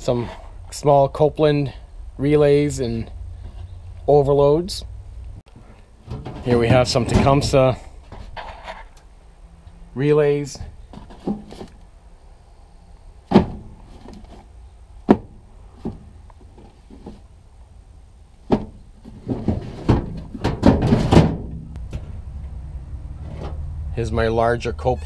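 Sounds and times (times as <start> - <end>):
plastic parts boxes knocking: 15.0 - 16.1, 18.4 - 21.8
drawer rattling shut: 18.5 - 21.6
metal cabinet latch: 19.8 - 21.7.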